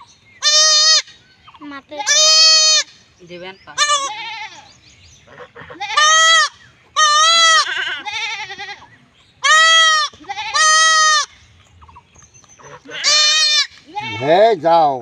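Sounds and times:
goat kid bleating: 0.4 - 1.2, 1.8 - 3.0, 3.7 - 4.7, 5.3 - 11.4, 12.6 - 14.5.

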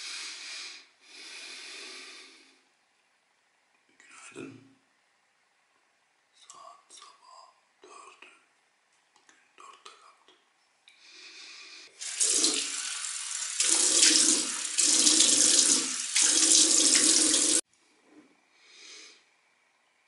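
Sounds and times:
tap water running onto hands: 12.0 - 17.6.

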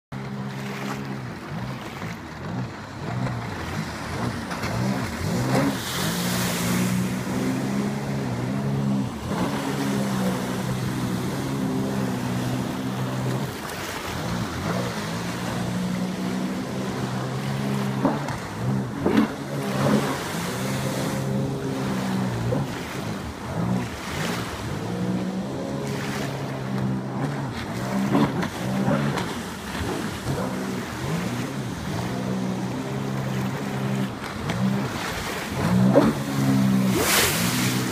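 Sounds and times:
watercraft engine revving: 0.1 - 37.9
water spray rushing: 3.8 - 24.5, 33.5 - 37.9.

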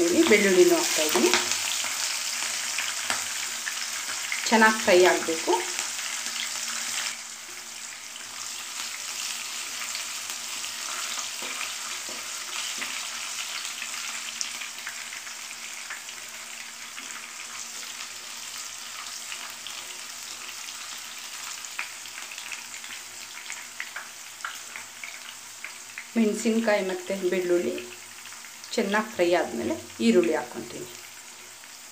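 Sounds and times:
chillies sizzling in hot oil: 0.0 - 31.9
wooden spatula stirring in pan: 10.8 - 13.1.

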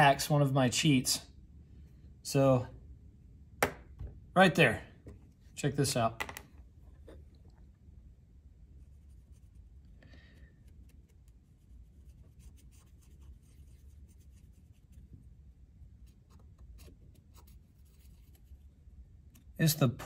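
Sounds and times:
marker scratching on metal: 10.8 - 15.1.

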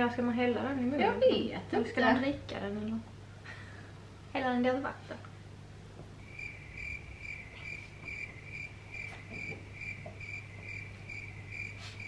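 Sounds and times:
low steady hum: 0.0 - 12.0
cricket chirping: 6.2 - 12.0.

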